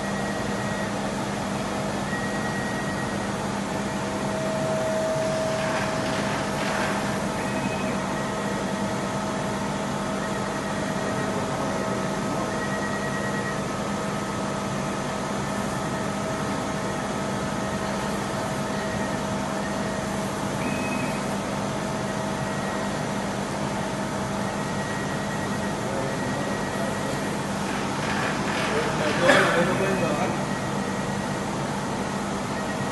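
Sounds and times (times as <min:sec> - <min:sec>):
high-pitched machine whines: 0:02.0 - 0:13.7, 0:15.7 - 0:32.9
machine humming: 0:03.8 - 0:08.3.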